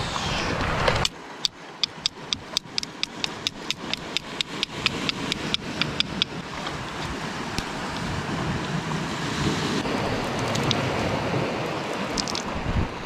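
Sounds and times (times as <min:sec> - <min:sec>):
sea waves washing over rocks: 0:00.0 - 0:13.0
sharp clicks: 0:01.0 - 0:06.4.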